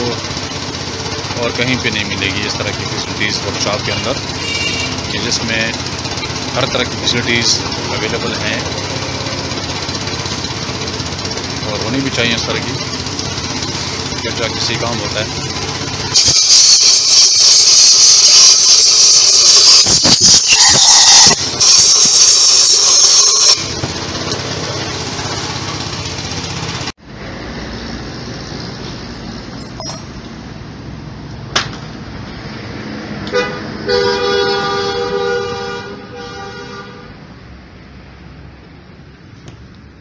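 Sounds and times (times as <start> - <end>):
vehicle horn: 4.4 - 5.1, 18.3 - 23.7, 33.3 - 37.2
compressed air gun hissing: 15.7 - 20.6.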